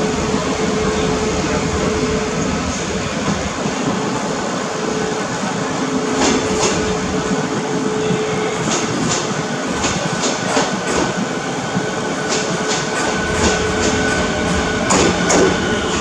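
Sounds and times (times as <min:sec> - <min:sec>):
train hum: 0:00.0 - 0:16.0
train wheels clicking over rail joints: 0:06.1 - 0:07.3, 0:08.6 - 0:16.0.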